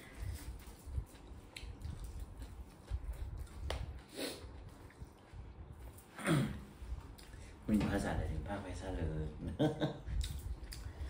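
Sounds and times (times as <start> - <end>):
chewing and squishing food: 0.0 - 6.1, 10.1 - 11.0.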